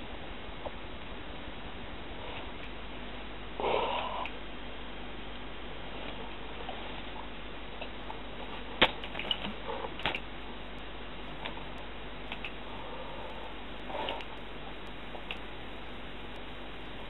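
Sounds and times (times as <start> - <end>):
low steady hiss: 0.0 - 17.0
sharp clicks and knocks: 11.3 - 12.7.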